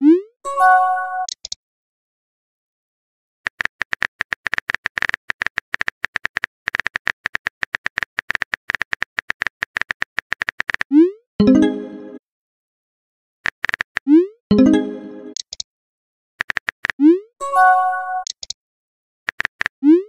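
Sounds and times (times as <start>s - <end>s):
high-pitched electronic clicks: 13.6s - 15.6s, 18.2s - 18.6s.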